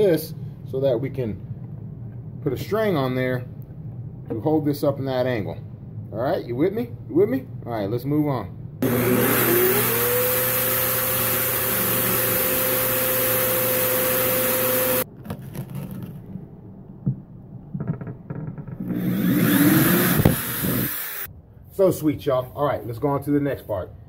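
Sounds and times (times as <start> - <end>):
drill handling noises: 8.8 - 15.0, 18.8 - 21.3
power drill whining: 8.8 - 15.0, 18.8 - 21.3.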